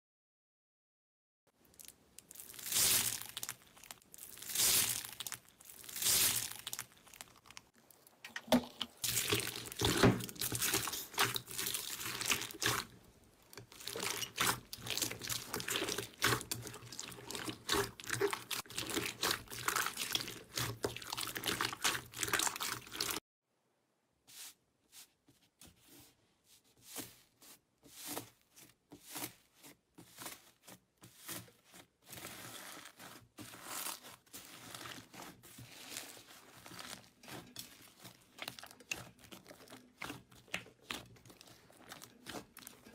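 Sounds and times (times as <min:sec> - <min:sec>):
foam beads crackling under hands: 0:01.6 - 0:07.8
slime crackling when squeezed: 0:01.6 - 0:08.2.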